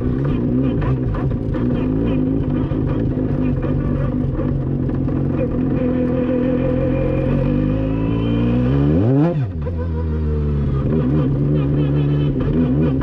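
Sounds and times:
racecar rotary engine revving: 0.0 - 13.0.

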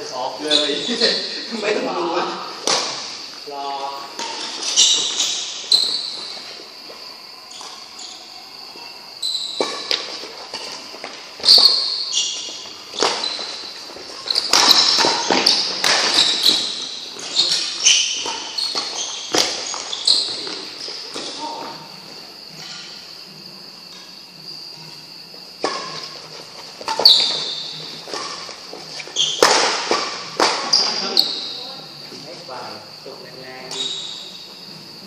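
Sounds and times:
shoes squeaking on court floor: 0.4 - 1.3, 2.4 - 32.2, 33.6 - 35.0
rackets striking shuttlecock: 9.5 - 13.3, 14.3 - 16.8, 26.8 - 31.4.

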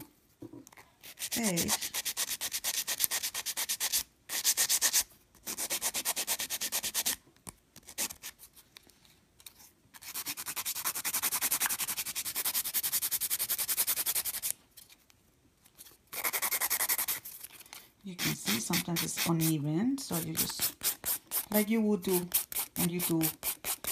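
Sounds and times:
nail file rubbing nail: 1.0 - 7.2, 7.8 - 8.5, 9.9 - 14.6, 16.1 - 17.4, 18.2 - 23.9.

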